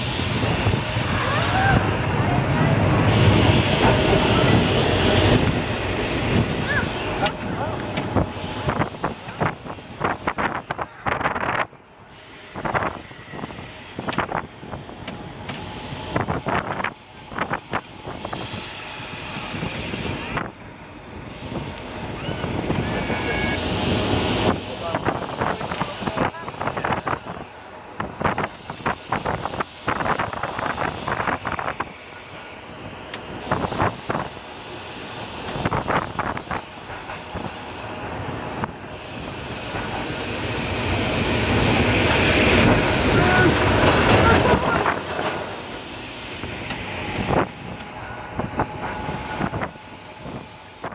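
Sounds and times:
wind buffeting microphone: 0.0s - 32.0s, 32.6s - 50.9s
tram wheels rumbling on rails: 0.0s - 50.9s
wind on microphone: 35.4s - 50.9s.

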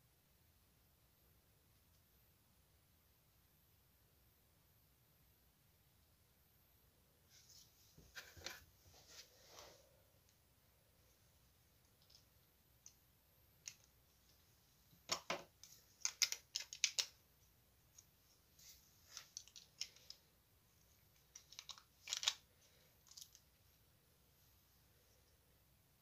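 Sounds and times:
plastic bricks clicking and clattering: 15.0s - 17.2s, 21.1s - 22.4s.

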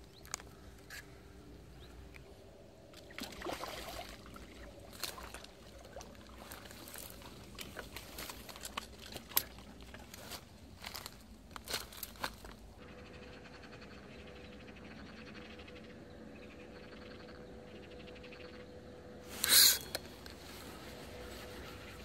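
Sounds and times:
water sloshing and trickling: 2.1s - 12.6s
water splash: 3.0s - 6.8s.

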